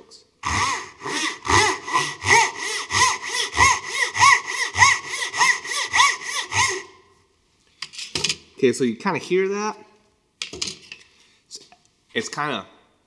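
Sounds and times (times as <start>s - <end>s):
pull saw rasping through wood: 0.4s - 6.9s.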